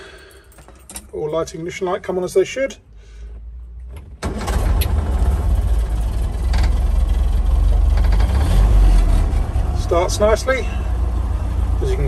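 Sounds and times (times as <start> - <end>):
car engine running: 4.4 - 12.0.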